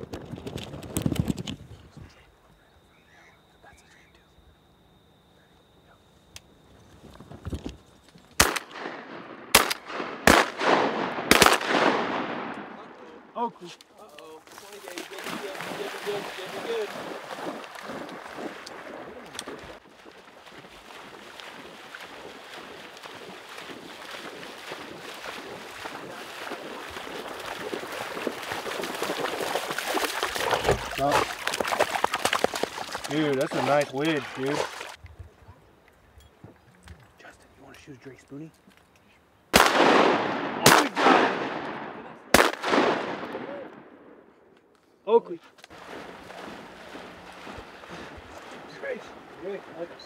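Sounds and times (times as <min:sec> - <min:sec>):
shotgun blasts with rolling echo: 0:08.4 - 0:13.3, 0:39.5 - 0:44.4
dog splashing through water: 0:14.4 - 0:35.0, 0:45.7 - 0:50.0.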